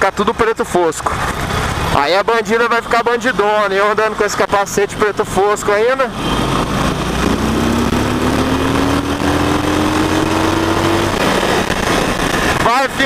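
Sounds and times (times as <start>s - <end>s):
motorcycle engine running: 6.1s - 12.6s
tone climbing in pitch: 6.2s - 11.3s.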